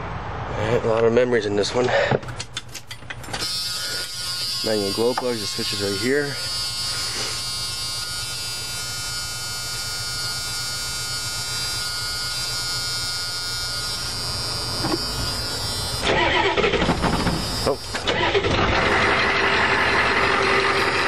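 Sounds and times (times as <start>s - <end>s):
steady electrical buzz: 2.8s - 21.0s
starter cranking engine: 15.8s - 21.0s.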